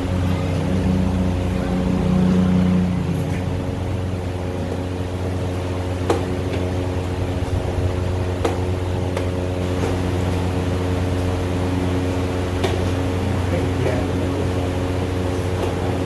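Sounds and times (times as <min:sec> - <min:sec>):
steady mechanical hum: 0:00.0 - 0:16.0.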